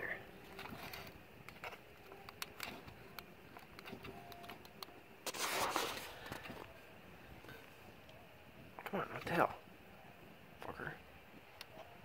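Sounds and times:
wires clicking and scraping: 0:00.0 - 0:06.8.

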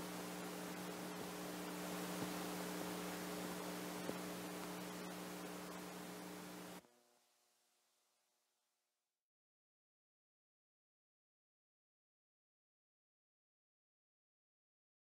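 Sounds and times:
tape hiss: 0:00.0 - 0:08.4
low mains hum: 0:00.0 - 0:09.0.

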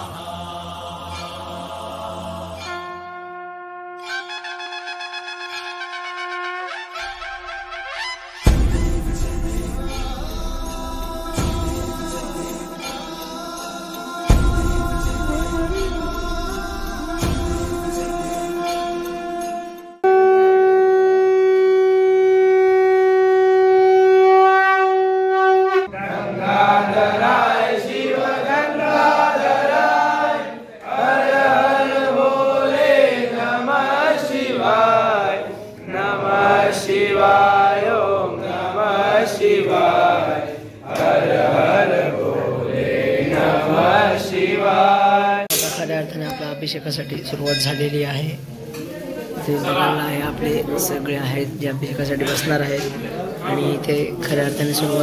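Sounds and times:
voices chanting: 0:00.0 - 0:03.0, 0:25.9 - 0:45.5
conch shell blown: 0:02.6 - 0:10.0, 0:17.6 - 0:25.9.

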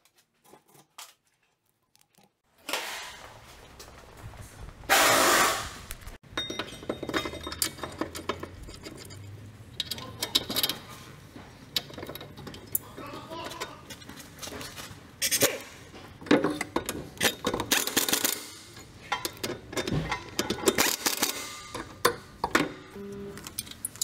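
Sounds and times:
loud hiss: 0:04.9 - 0:05.9
metal tools clinking and rattling: 0:06.2 - 0:15.6.

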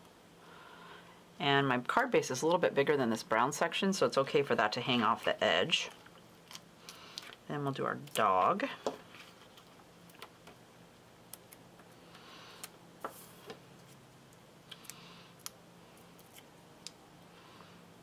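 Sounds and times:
soft paper rustles: 0:09.0 - 0:10.3.

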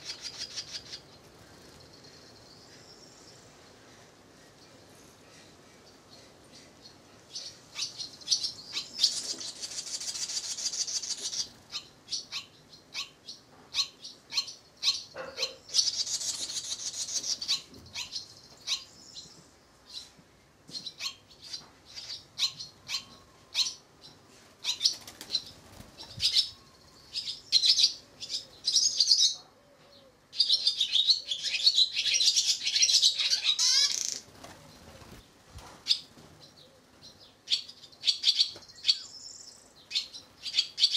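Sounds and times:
swallows chirping and twittering: 0:00.0 - 0:29.4.

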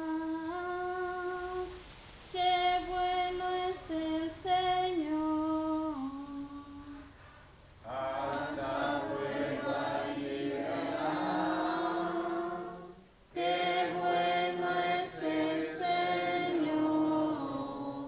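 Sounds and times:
congregation singing unaccompanied: 0:07.8 - 0:18.0.

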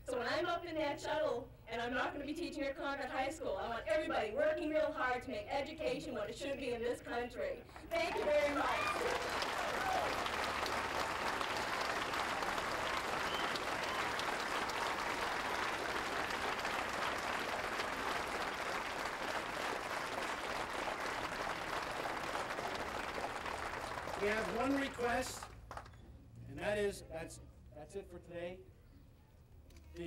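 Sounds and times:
crowd applauding: 0:07.8 - 0:26.0.

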